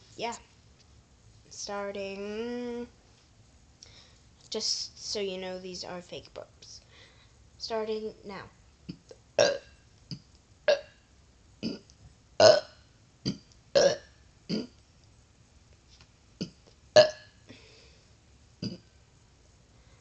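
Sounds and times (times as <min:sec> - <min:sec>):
girl fake burping: 0:09.4 - 0:09.6, 0:11.6 - 0:11.8, 0:13.3 - 0:14.7.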